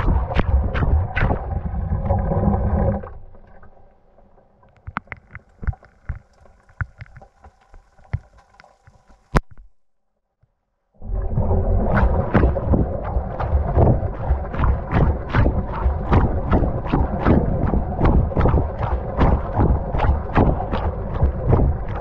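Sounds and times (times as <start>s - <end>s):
water drips: 3.0s - 9.6s, 11.4s - 22.0s
washing machine water sloshing: 11.3s - 22.0s.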